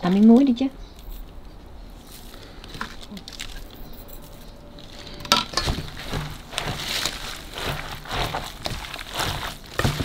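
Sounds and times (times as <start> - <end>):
utensil scraping bowl: 5.0 - 10.0.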